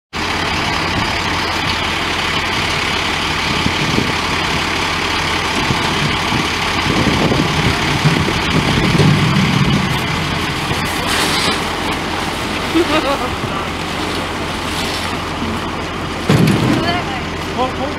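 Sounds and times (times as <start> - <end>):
fire truck engine idling: 0.1 - 17.9
vinyl tank rustling: 8.2 - 15.6.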